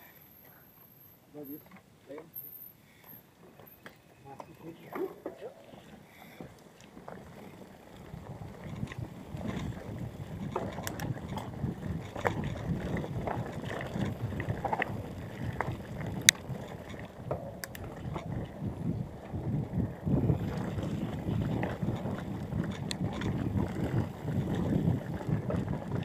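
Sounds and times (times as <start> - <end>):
bike clicks and rattles: 3.5 - 26.0
bike tyres rumbling over dirt: 4.4 - 26.0
wind on microphone: 8.0 - 26.0.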